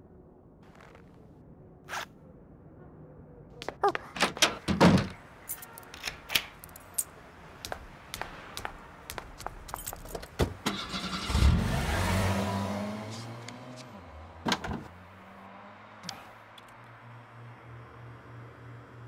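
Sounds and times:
car engine starting and running: 10.5 - 19.0.

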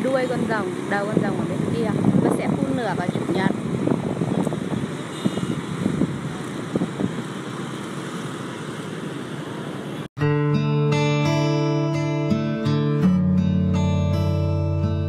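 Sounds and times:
road traffic hum: 0.0 - 10.1.

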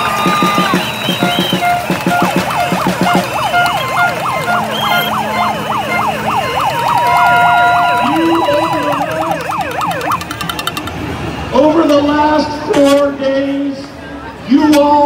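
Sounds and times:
siren noisemakers wailing: 0.0 - 11.0.

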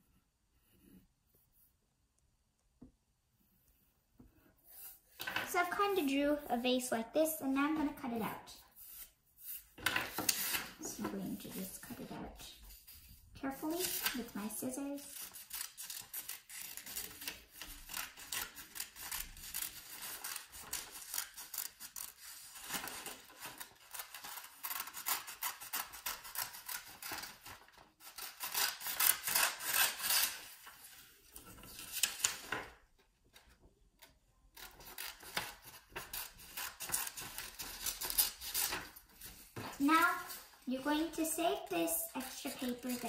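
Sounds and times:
scissors cutting paper: 8.8 - 31.0, 34.5 - 41.3, 42.2 - 43.0
paper rustling: 8.8 - 33.7, 34.6 - 41.2, 42.2 - 43.0.

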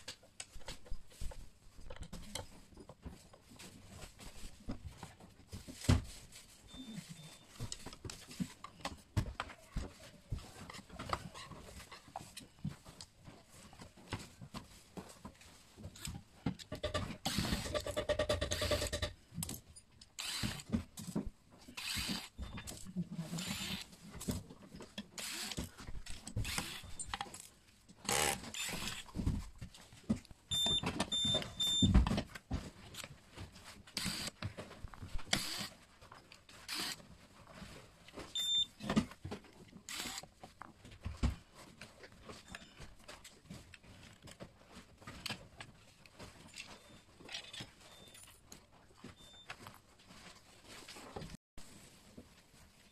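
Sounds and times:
plastic parts knocking and rattling: 0.0 - 6.5, 7.3 - 51.4
keypad beeps: 30.5 - 31.9, 38.4 - 38.7.

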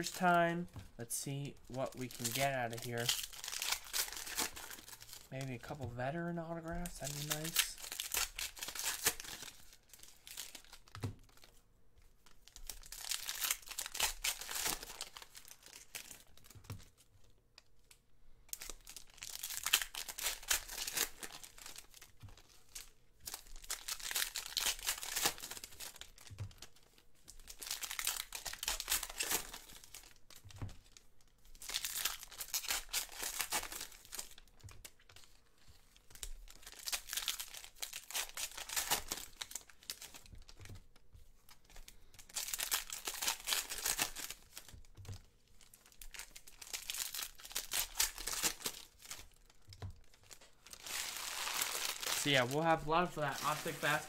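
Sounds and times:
foil wrappers crinkling and tearing: 1.6 - 11.6, 12.2 - 17.0, 17.7 - 54.0.

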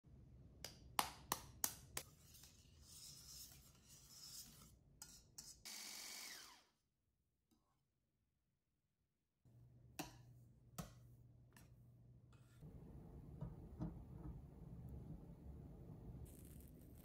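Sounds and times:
soft rubbing and scraping: 2.0 - 5.5.

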